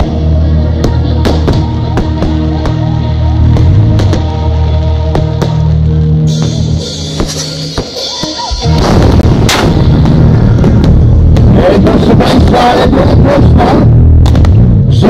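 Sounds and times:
live rock band music: 0.0s - 12.6s
firecrackers banging and crackling: 3.4s - 4.4s, 6.4s - 12.7s.

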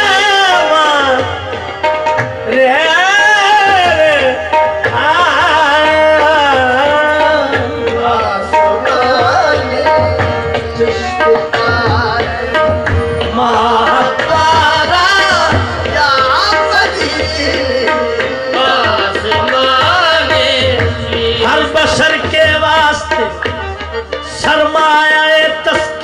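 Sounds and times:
tabla drumming: 0.0s - 26.0s
voices singing ornamented melody: 5.0s - 23.4s.

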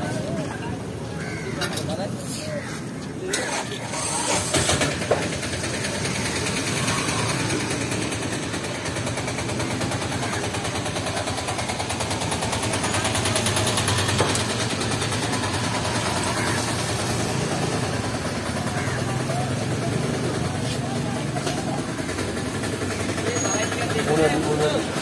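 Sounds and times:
small engine idling: 3.6s - 25.0s.

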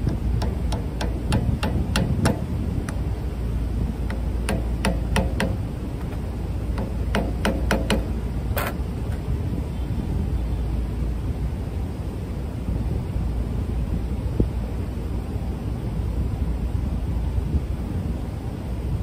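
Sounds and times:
hammer tapping metal pulley: 0.1s - 2.4s, 4.1s - 5.6s, 6.8s - 8.1s.

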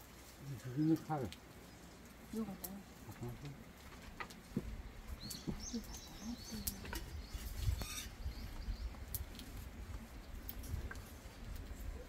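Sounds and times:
small bird chirping: 5.1s - 9.2s.

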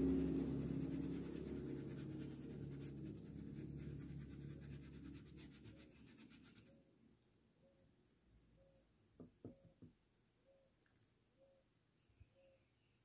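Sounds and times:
paintbrush scratching on cloth: 0.0s - 6.8s.

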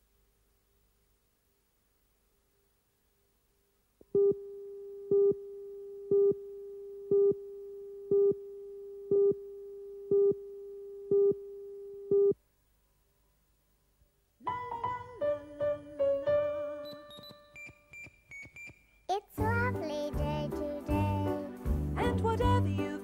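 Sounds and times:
countdown beeps: 16.8s - 19.0s.

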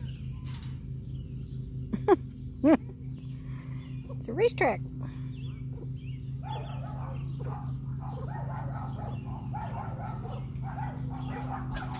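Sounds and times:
steady low hum: 0.0s - 11.9s
puppies yipping and whining: 5.4s - 11.9s.

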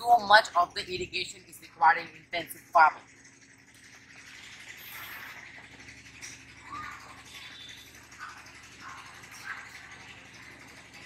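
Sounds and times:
marker squeaking on whiteboard: 4.3s - 9.9s.

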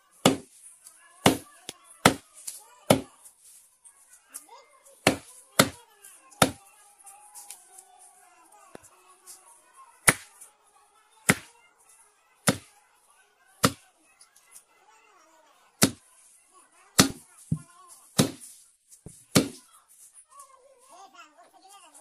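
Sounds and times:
knife chopping fish on wooden block: 0.3s - 0.5s, 18.2s - 18.4s.

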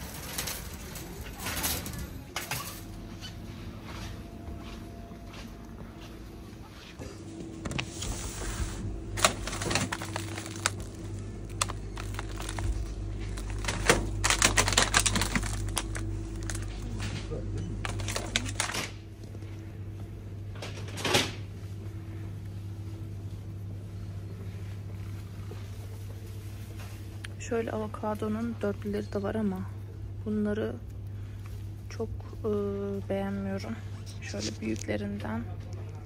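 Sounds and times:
low steady hum: 0.0s - 36.0s
plastic packages crinkling: 8.8s - 17.0s, 17.8s - 19.0s.

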